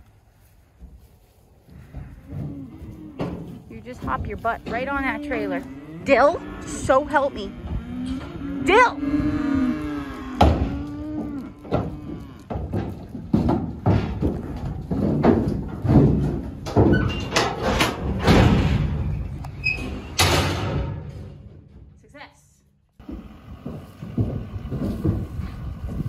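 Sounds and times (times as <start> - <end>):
hooves thumping in metal trailer: 0.4 - 22.1, 23.0 - 26.0
metal gate slamming shut: 16.0 - 21.8.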